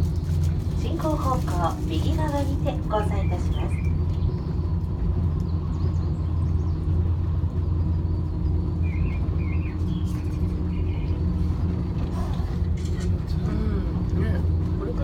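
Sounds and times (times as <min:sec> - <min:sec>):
gondola cabin rumble and hum: 0:00.0 - 0:15.0
bird chirping: 0:07.6 - 0:11.4.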